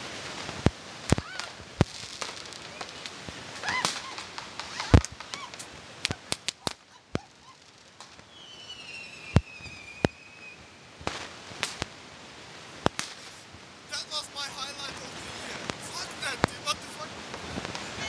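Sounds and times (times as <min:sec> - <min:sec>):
firecracker bangs: 0:00.0 - 0:06.9, 0:11.0 - 0:11.9, 0:12.8 - 0:13.4
whistling firework: 0:01.1 - 0:11.9, 0:12.9 - 0:13.4.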